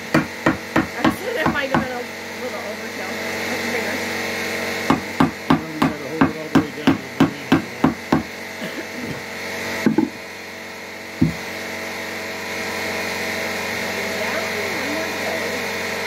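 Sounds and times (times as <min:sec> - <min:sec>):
hammer striking nail into wood: 0:00.0 - 0:02.0, 0:04.8 - 0:08.4, 0:09.8 - 0:10.1, 0:11.2 - 0:11.4
single knocks: 0:11.2 - 0:11.4.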